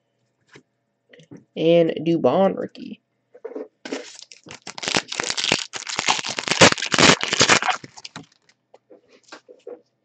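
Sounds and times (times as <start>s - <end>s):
card pack wrapper crinkling and ripping: 3.9s - 8.5s.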